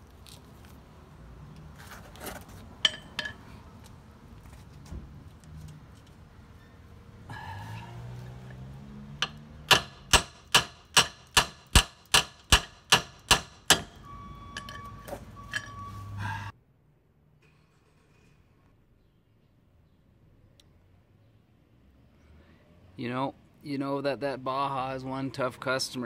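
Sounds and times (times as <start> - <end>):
hammer striking steel wrench: 2.8 - 3.4, 9.2 - 15.8
metal clatter: 2.8 - 3.5, 14.6 - 15.8.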